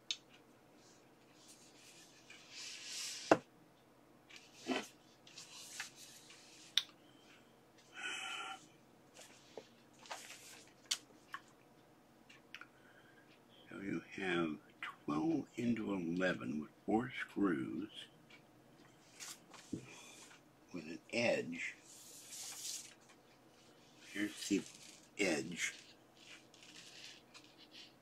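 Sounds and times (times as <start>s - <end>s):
paper sheet rustling: 10.0s - 10.8s, 21.9s - 23.1s.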